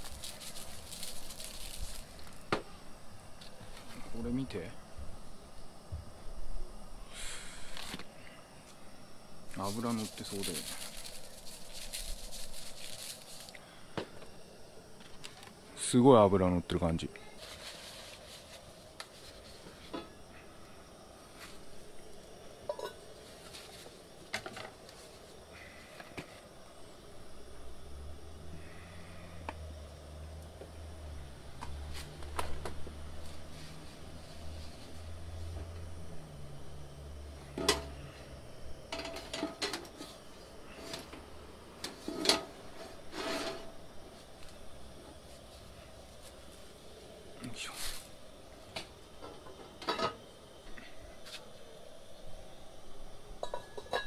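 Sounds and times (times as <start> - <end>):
paper towel rubbing on pan: 17.4 - 19.8
cookware knocks and clinks: 53.4 - 54.0.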